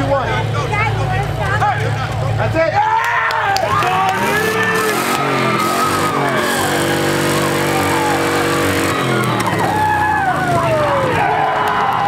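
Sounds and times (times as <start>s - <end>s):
pickup truck engine revving: 3.6s - 12.0s.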